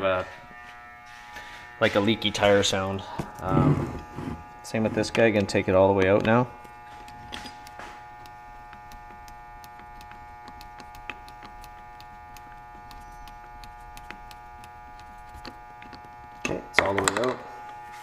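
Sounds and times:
electrical hum: 0.0 - 18.0
adjuster clicks: 5.4 - 16.2.

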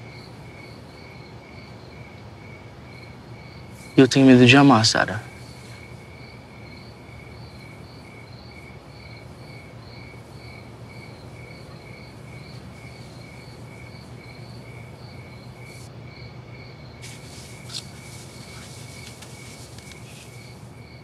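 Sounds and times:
crickets chirping: 0.0 - 21.0.

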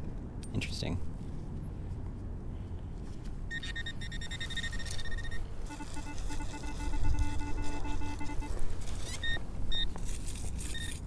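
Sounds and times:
metal detector high tone: 3.5 - 9.9
metal detector pulsing lower tone: 3.5 - 10.0.

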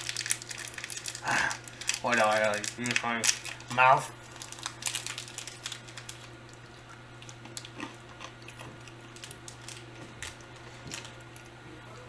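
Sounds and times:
candy pack crinkling: 0.0 - 11.5
steady low hum: 0.0 - 12.0.

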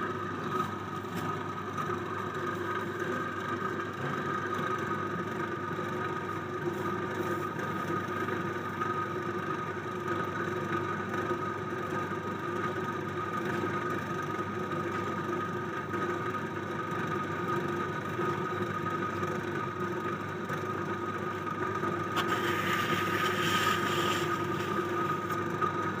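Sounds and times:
potter's wheel motor hum: 0.0 - 26.0
tool scraping spinning clay: 21.4 - 26.0.

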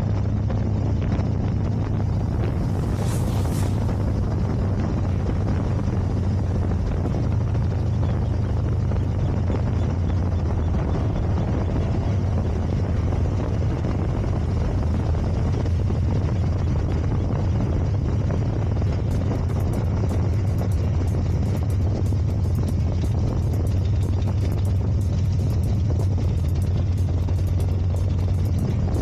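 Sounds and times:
motorcycle engine rumbling: 0.0 - 29.0
wind rush: 0.0 - 29.0.

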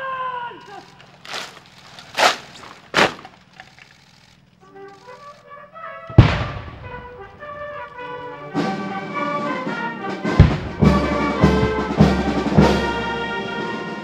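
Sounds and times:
military brass band playing: 4.6 - 14.0
loud bang ringing: 6.2 - 7.7, 10.3 - 12.9
deep drum beats: 10.2 - 13.2.

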